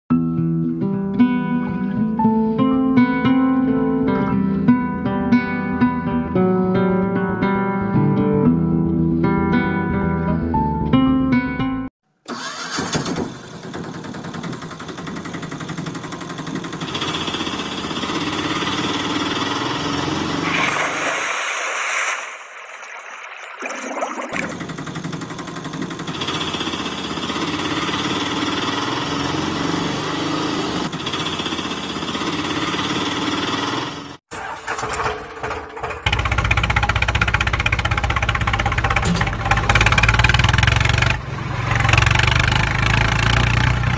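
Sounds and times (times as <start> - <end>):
small motor vehicle engine: 12.3 - 20.8, 24.4 - 43.9
hiss: 20.4 - 22.6.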